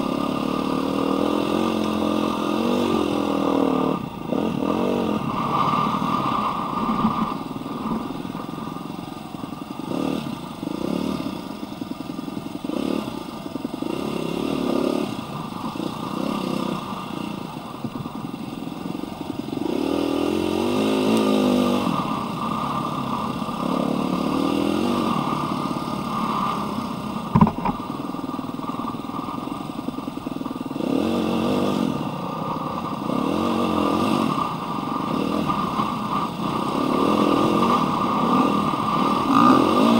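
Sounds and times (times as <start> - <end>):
dirt bike engine revving: 0.0 - 17.7, 18.6 - 39.9
sharp knock: 27.3 - 27.8.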